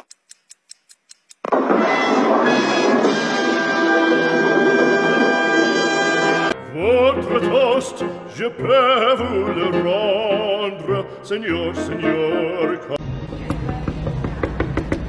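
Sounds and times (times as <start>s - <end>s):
opera-style singing over music: 5.4s - 13.0s.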